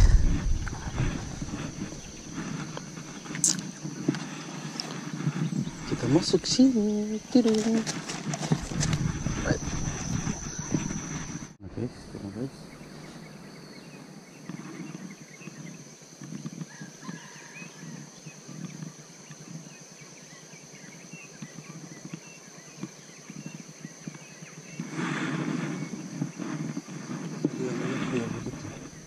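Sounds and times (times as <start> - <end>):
loud rustle: 0.0 - 11.6, 24.8 - 29.0
high-pitched insect drone: 0.0 - 24.9
faint bird chirps: 8.5 - 15.8.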